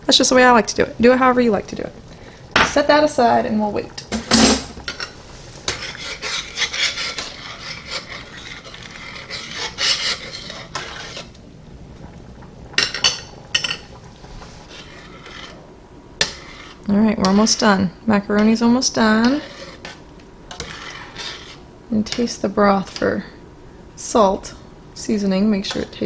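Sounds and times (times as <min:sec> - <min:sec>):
boiling water: 0:00.0 - 0:26.0
spoon scraping saucepan: 0:04.0 - 0:11.4, 0:12.8 - 0:17.8, 0:18.4 - 0:23.2.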